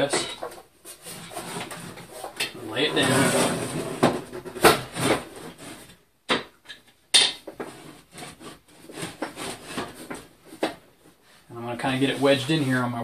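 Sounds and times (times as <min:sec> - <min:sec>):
clunks and scrapes on wood: 0:00.0 - 0:06.0, 0:07.3 - 0:11.2.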